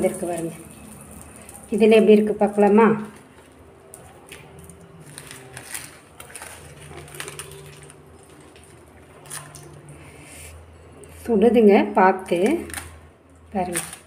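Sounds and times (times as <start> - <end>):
banana leaf crinkling: 0.0 - 10.4, 13.6 - 14.0.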